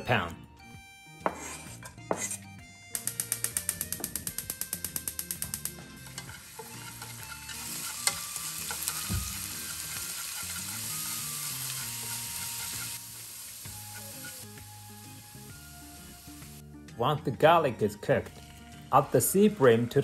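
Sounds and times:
garlic sizzling in oil: 0:05.5 - 0:16.6
chopsticks stirring in pan: 0:05.6 - 0:14.6.

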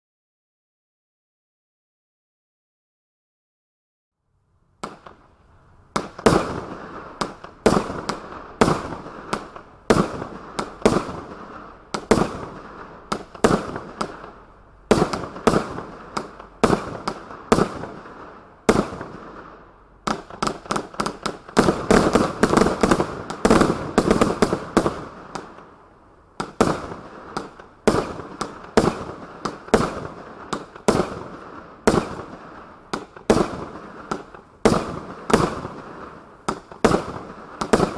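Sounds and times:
fireworks cake bangs: 0:20.1 - 0:25.5, 0:26.4 - 0:37.9.

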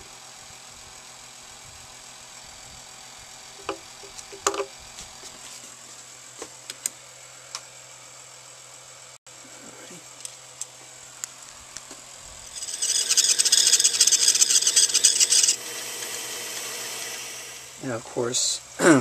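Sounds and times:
steady hum: 0:09.3 - 0:19.0.

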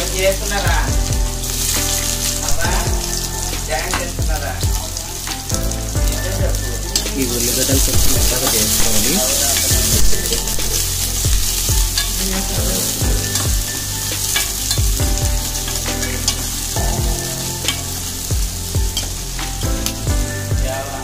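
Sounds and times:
onions sizzling in oil: 0:00.0 - 0:21.0
metal spatula scraping a pan: 0:06.7 - 0:20.0.

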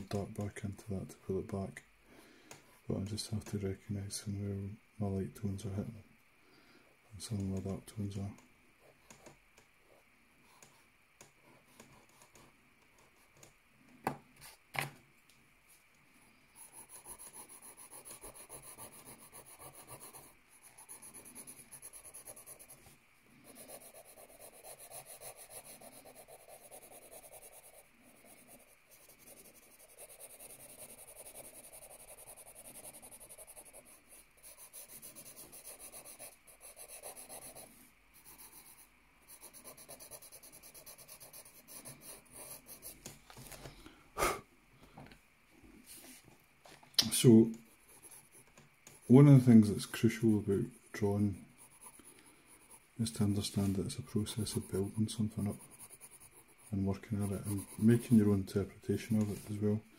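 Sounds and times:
pencil scratching on paper: 0:09.9 - 0:13.5, 0:16.5 - 0:43.1, 0:47.6 - 0:59.7.

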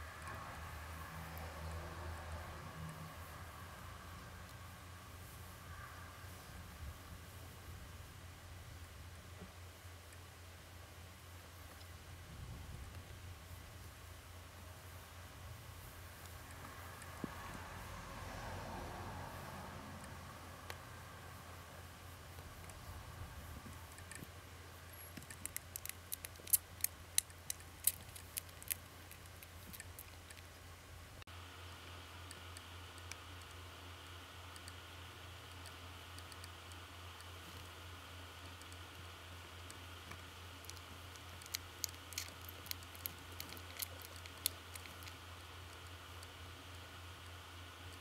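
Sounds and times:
faint low hum: 0:00.0 - 0:48.0
small sharp clicks: 0:24.9 - 0:30.6, 0:32.2 - 0:34.8, 0:39.6 - 0:48.0.

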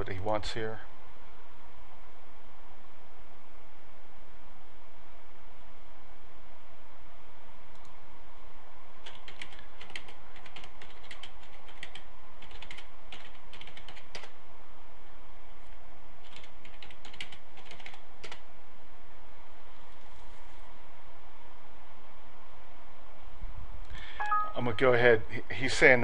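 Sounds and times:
steady background hiss: 0:00.0 - 0:26.0
typing on computer keyboard: 0:09.0 - 0:14.4, 0:16.2 - 0:18.4.

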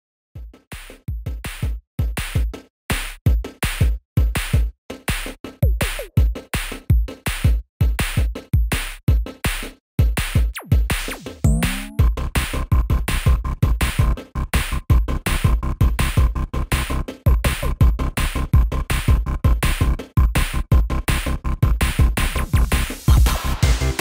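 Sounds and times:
electronic drum machine beat: 0:00.4 - 0:02.6, 0:03.3 - 0:12.2, 0:20.2 - 0:24.0.

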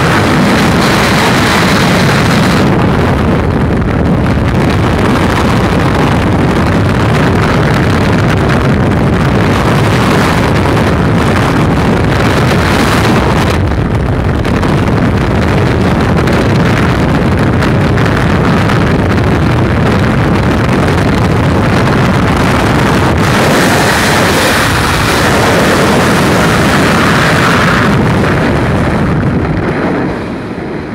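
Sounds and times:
wind buffeting microphone: 0:00.0 - 0:30.9.

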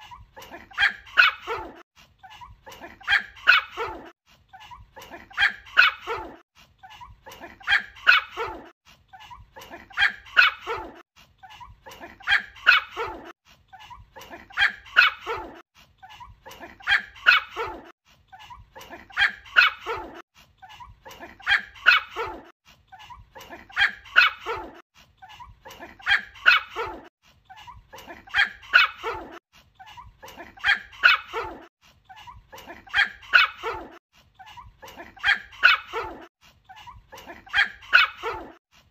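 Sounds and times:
small dog barking: 0:02.8 - 0:04.1, 0:05.3 - 0:06.4, 0:07.4 - 0:08.7, 0:12.0 - 0:13.3, 0:14.6 - 0:15.6, 0:16.8 - 0:17.9, 0:21.3 - 0:22.5, 0:23.7 - 0:24.8, 0:26.0 - 0:27.1, 0:28.3 - 0:29.4, 0:30.6 - 0:31.7, 0:35.0 - 0:36.3, 0:37.5 - 0:38.6.

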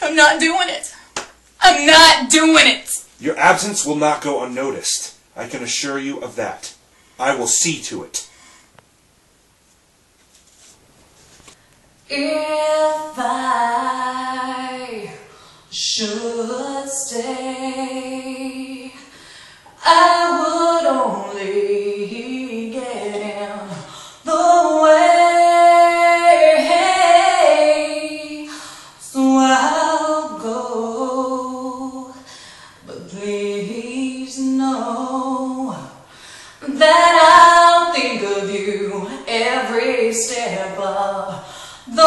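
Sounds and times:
woman singing unaccompanied: 0:12.1 - 0:19.1, 0:19.8 - 0:42.0.

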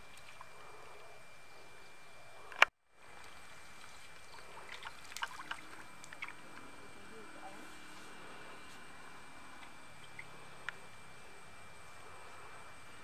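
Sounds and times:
thin high hum: 0:00.0 - 0:13.0
water dripping and splashing: 0:03.2 - 0:06.6.

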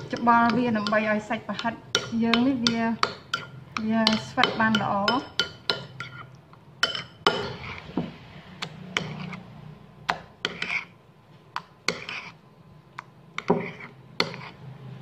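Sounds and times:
metal spoon stirring in a bowl: 0:00.0 - 0:08.0, 0:08.6 - 0:09.5, 0:10.1 - 0:11.0, 0:11.6 - 0:12.4, 0:13.4 - 0:14.7.

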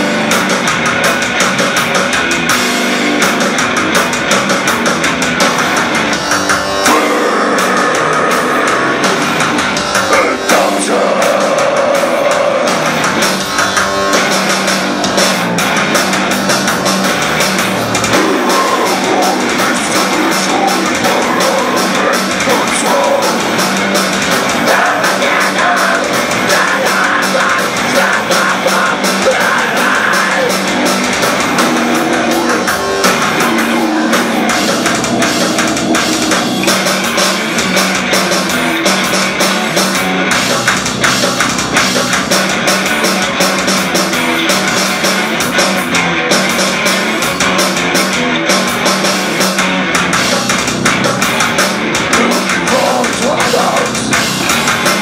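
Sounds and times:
drums: 0:00.0 - 0:55.0
electric guitars: 0:00.0 - 0:55.0
man singing into microphone: 0:06.9 - 0:09.0, 0:10.1 - 0:12.7, 0:18.2 - 0:23.4, 0:24.6 - 0:30.6, 0:52.2 - 0:54.0.

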